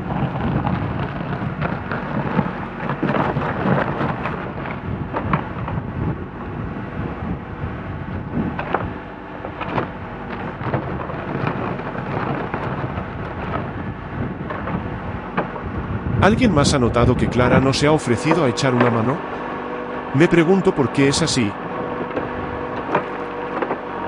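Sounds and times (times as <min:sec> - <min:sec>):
diesel engine under load: 0:00.0 - 0:24.0
bucket scraping through gravel: 0:10.1 - 0:13.7, 0:20.9 - 0:24.0.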